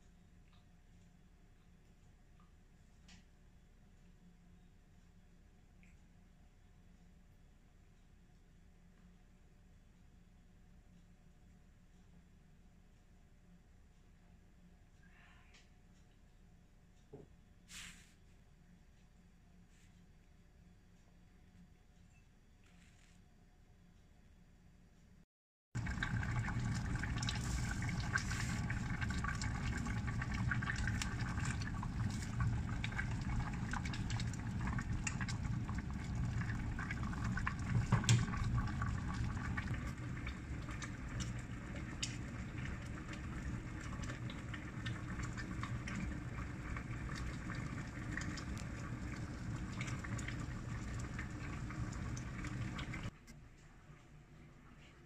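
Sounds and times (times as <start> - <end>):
soup boiling and bubbling: 25.8 - 53.2.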